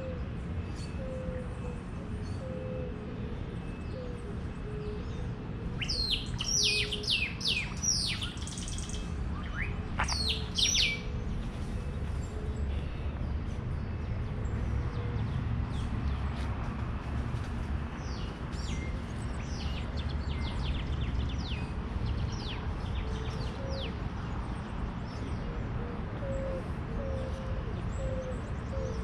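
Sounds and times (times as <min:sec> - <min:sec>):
songbird calling: 0:04.7 - 0:13.2.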